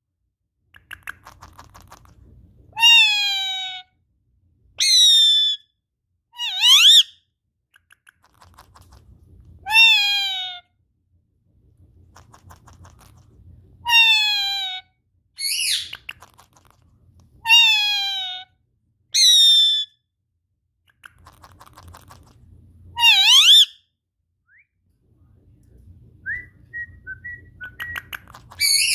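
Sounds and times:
parakeet calls: 0:04.8 - 0:05.6, 0:06.4 - 0:07.1, 0:15.4 - 0:16.4, 0:19.2 - 0:19.9, 0:23.0 - 0:23.8, 0:28.0 - 0:28.9.

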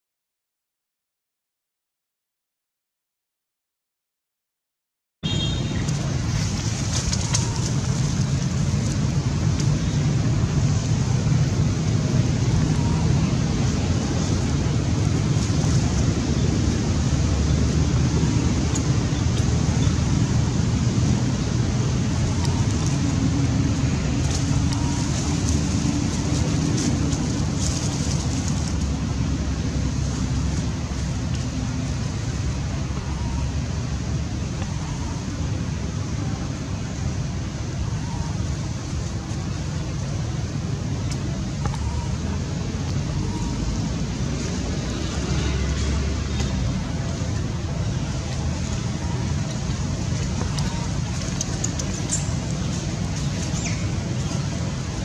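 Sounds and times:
low rumbling background noise: 0:05.2 - 0:55.0
faint clicks: 0:50.3 - 0:53.6.

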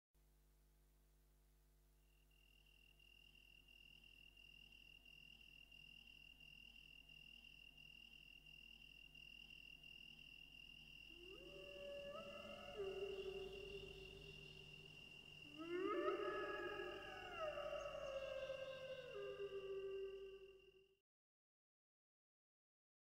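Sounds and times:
crickets chirping: 0:02.0 - 0:20.9
wolves howling: 0:11.1 - 0:20.7.

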